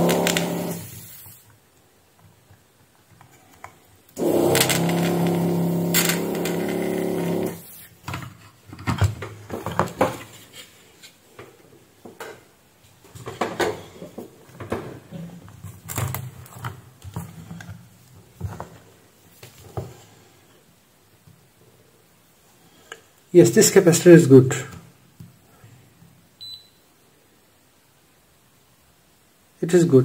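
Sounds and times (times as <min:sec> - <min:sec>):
steady hum: 0:00.0 - 0:01.5, 0:04.1 - 0:08.0.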